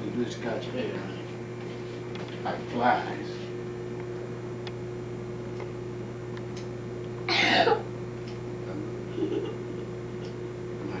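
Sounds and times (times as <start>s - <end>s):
electrical hum: 0.0s - 11.0s
person coughing: 7.3s - 7.8s.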